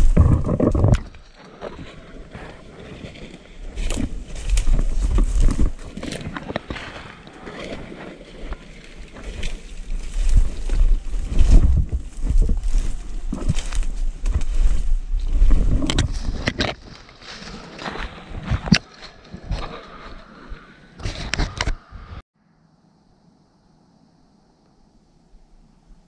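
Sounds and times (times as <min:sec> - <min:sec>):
low wind rumble on microphone: 0:00.0 - 0:16.9
footsteps through brush: 0:00.0 - 0:20.6.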